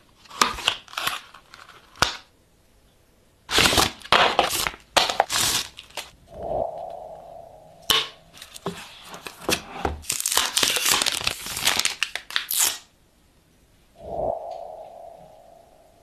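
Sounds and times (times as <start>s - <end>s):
plastic sleeve crinkling and tearing: 0.2s - 2.3s, 3.5s - 6.1s, 9.2s - 12.9s.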